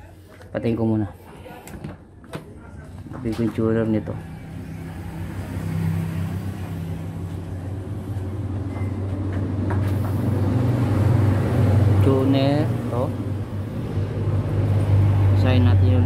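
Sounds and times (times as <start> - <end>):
low engine hum: 3.9 - 16.0.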